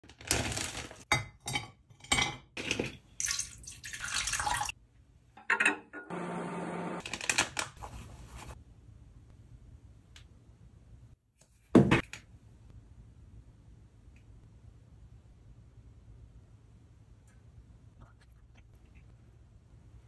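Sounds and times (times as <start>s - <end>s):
plastic bag opening: 0.1s - 1.0s
water pouring into a dish: 3.2s - 4.8s.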